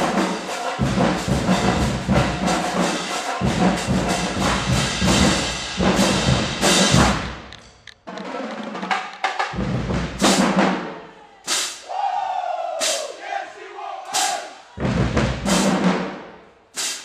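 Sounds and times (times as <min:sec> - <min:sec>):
low drums: 0:00.0 - 0:10.9, 0:14.2 - 0:17.0
marching band playing: 0:00.0 - 0:11.8, 0:14.0 - 0:17.0.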